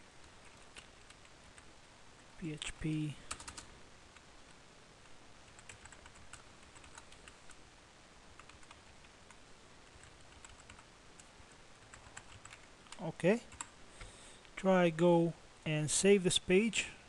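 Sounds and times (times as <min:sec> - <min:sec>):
faint keyboard typing: 0:00.2 - 0:01.7, 0:02.5 - 0:07.6, 0:08.3 - 0:14.5.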